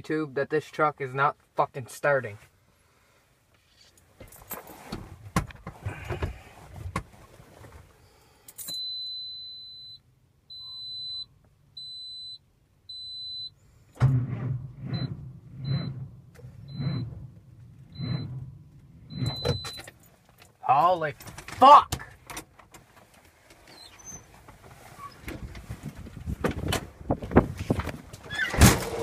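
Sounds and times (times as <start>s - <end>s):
handling rustle and knocks: 3.6s - 7.9s, 19.7s - 29.0s
dashboard warning chime beeping: 8.6s - 13.6s, 16.6s - 17.1s, 17.9s - 18.4s, 19.0s - 19.9s.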